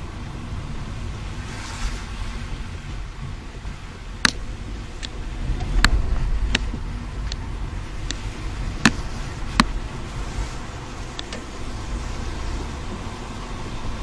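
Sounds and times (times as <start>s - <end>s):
tyres rumbling on wet road: 0.0s - 14.0s
turn signal clicking: 4.2s - 9.8s, 11.1s - 11.6s.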